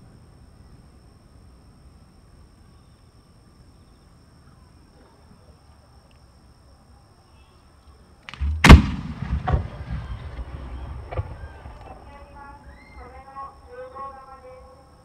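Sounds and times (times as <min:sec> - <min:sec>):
insects chirring: 0:00.0 - 0:15.0
fireworks shell boom: 0:08.3 - 0:11.8.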